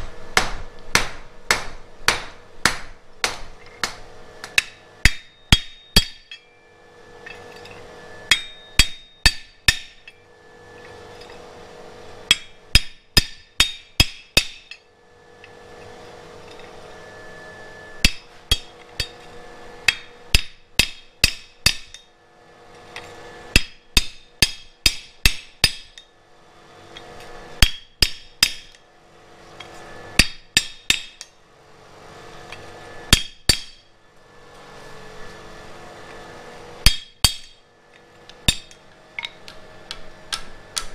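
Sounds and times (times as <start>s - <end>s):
low steady hum: 0.0s - 40.9s
hammer striking iron on anvil: 0.4s - 6.6s, 7.2s - 10.2s, 12.3s - 14.9s, 18.0s - 19.2s, 19.8s - 22.1s, 23.5s - 26.1s, 27.6s - 28.8s, 30.2s - 31.4s, 33.1s - 33.9s, 36.8s - 37.6s, 38.4s - 40.9s.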